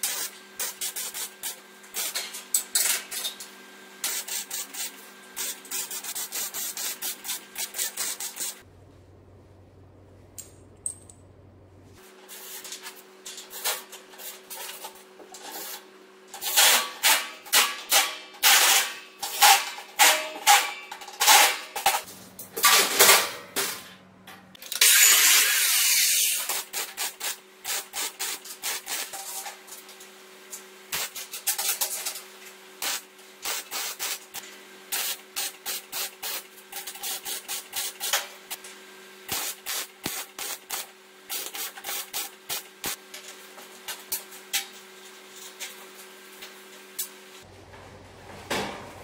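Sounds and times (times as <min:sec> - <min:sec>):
welder crackling bursts: 0:39.3 - 0:43.0
welder hissing: 0:39.3 - 0:43.0.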